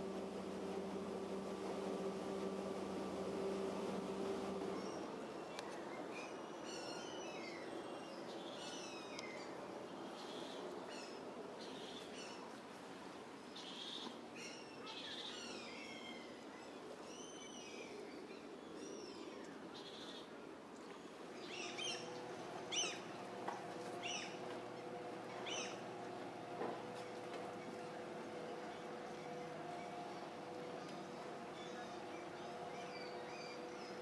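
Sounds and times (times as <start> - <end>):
steady low hum: 0.0 - 5.6, 21.2 - 34.0
birds chirping: 21.4 - 34.0.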